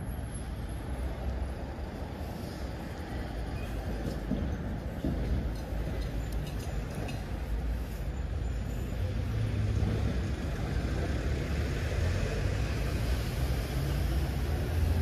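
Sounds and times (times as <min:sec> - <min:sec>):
road traffic rumble: 0:00.0 - 0:15.0.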